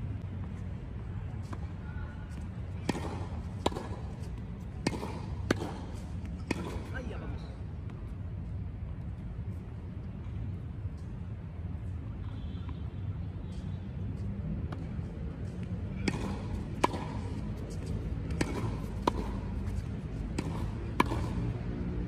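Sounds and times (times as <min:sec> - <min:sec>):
tennis ball hitting racket: 0:02.8 - 0:07.0, 0:15.9 - 0:22.0.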